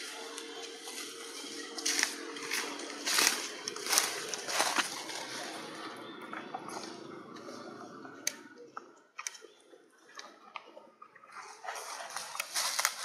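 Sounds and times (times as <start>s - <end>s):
sharp clicks and crackles: 8.2s - 13.0s.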